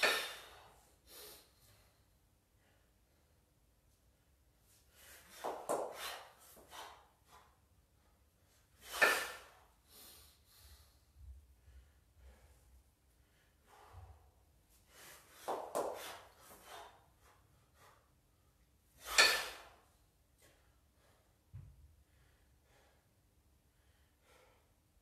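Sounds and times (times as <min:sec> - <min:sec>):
person breathing hard: 0:08.9 - 0:17.0, 0:21.0 - 0:25.0.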